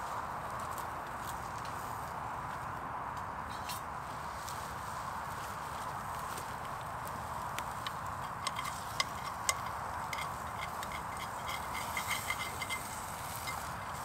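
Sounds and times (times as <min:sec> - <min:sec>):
spork scraping a pan: 0:07.8 - 0:14.0.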